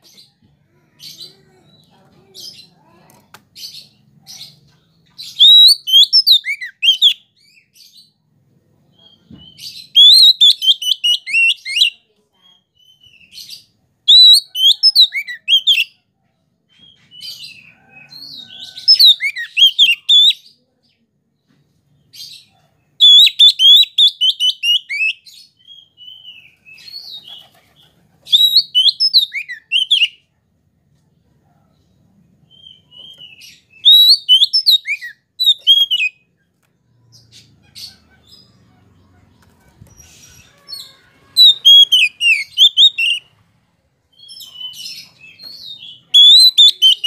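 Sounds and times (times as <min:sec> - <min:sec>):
bird singing: 0:05.2 - 0:07.7, 0:23.0 - 0:27.2, 0:28.3 - 0:30.2, 0:32.5 - 0:36.2, 0:40.5 - 0:43.3, 0:44.1 - 0:47.0.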